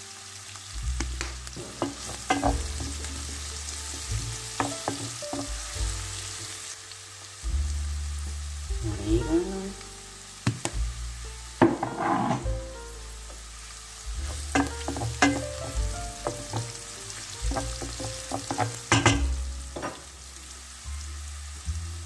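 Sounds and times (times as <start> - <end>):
vegetables sizzling in a pan: 0.0 - 22.0
utensil scraping metal pan: 1.7 - 5.5, 11.6 - 12.6, 14.2 - 20.0.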